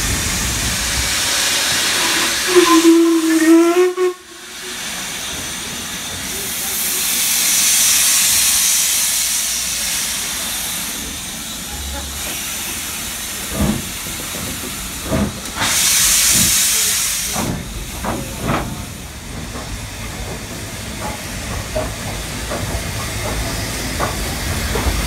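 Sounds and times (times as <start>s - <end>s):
steam blast: 0.0s - 20.0s
steam locomotive hissing: 0.0s - 25.0s.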